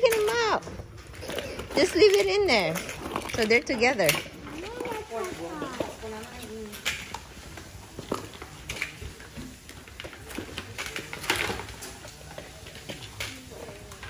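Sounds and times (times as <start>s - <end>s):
plastic toys clicking and rattling: 0.0s - 14.0s.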